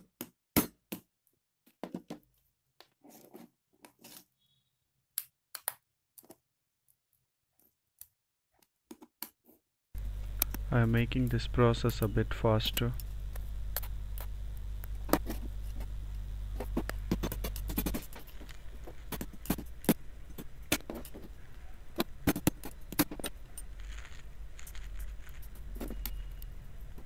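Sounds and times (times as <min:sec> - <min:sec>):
steady low hum: 0:10.0 - 0:27.0.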